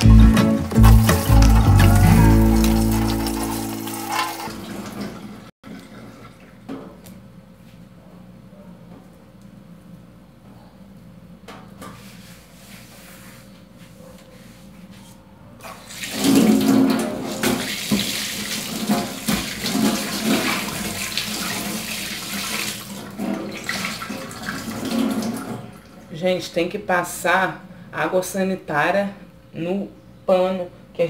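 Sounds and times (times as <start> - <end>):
dishcloth rinsed splashing: 0.6 - 6.7, 15.6 - 25.9
tap water running into metal sink: 0.8 - 6.0, 15.6 - 25.7.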